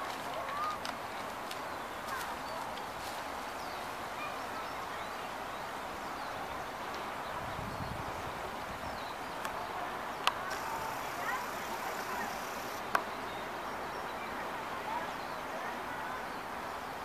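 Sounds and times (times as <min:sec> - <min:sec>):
outdoor background hiss: 0:00.0 - 0:17.0
small birds chirping: 0:08.7 - 0:14.4.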